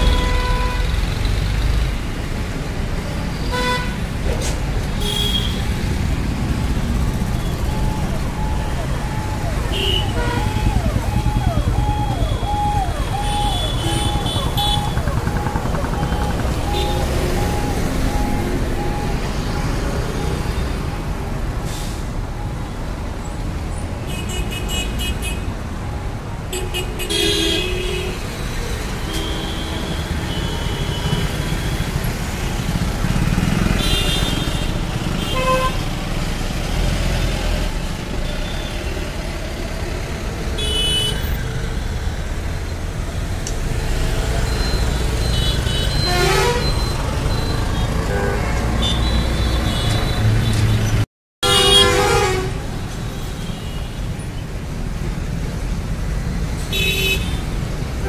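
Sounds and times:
rumble of traffic: 0.0s - 58.0s
vehicle horns honking: 9.1s - 15.5s, 45.3s - 46.9s, 51.4s - 52.6s, 56.7s - 57.4s.

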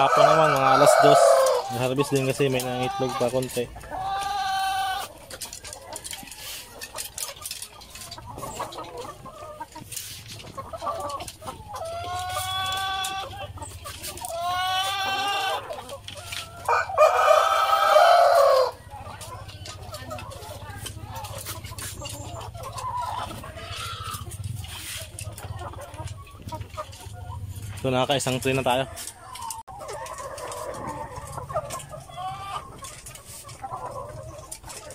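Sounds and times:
chickens long drawn-out calls: 0.0s - 34.9s
soft chicken clucking: 0.0s - 34.9s.

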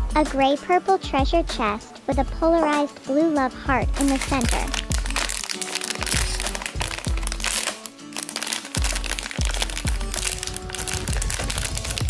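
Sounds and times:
music with bass beat: 0.0s - 2.7s, 3.5s - 7.7s, 8.8s - 12.0s
foil bag crinkling: 4.0s - 12.0s.

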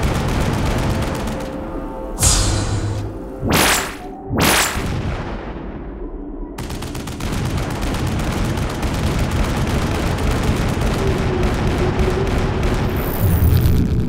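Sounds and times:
cartoon machine-gun fire: 0.0s - 1.6s, 2.2s - 5.0s, 6.6s - 13.6s
low rumble: 2.2s - 6.7s.

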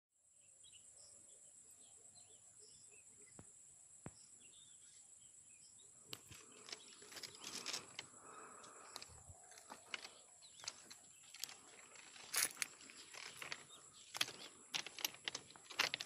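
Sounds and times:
clicks and crackles: 6.1s - 16.0s.

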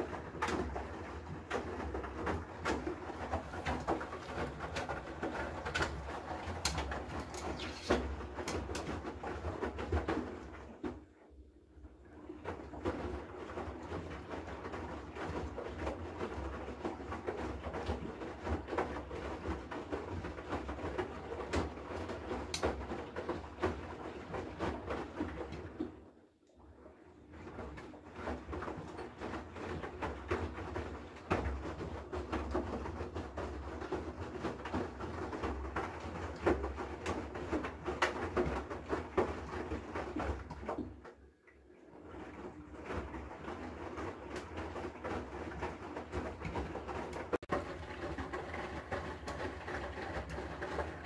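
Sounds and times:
washing machine drum tumbling: 0.0s - 11.1s, 27.3s - 51.0s
water sloshing: 0.0s - 11.1s.

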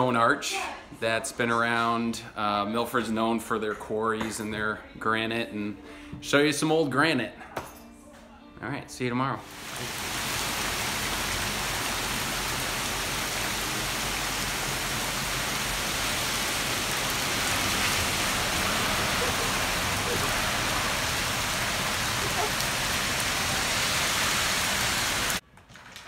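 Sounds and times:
heavy rain on wet street: 9.5s - 25.4s.

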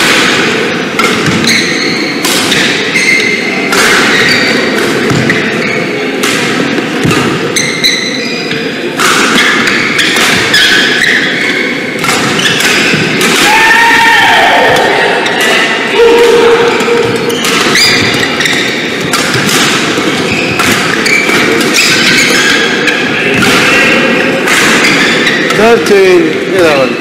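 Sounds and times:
shoes squeaking on court: 1.2s - 6.0s, 7.5s - 8.8s, 9.4s - 13.2s, 16.8s - 23.4s, 24.8s - 25.6s
shuttlecock hits: 9.0s - 11.2s, 12.0s - 13.6s, 16.8s - 22.7s, 23.3s - 25.7s.

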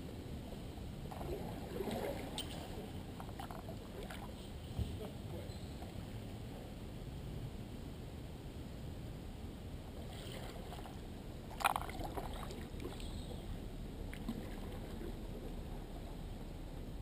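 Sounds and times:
canoe paddling water: 1.0s - 6.5s, 9.8s - 17.0s.

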